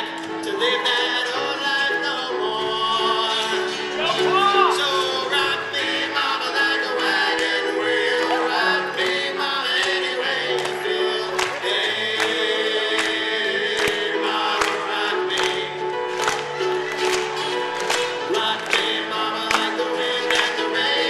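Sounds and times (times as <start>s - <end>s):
acoustic guitar: 0.0s - 21.0s
grand piano: 0.0s - 21.0s
upright bass: 0.0s - 21.0s.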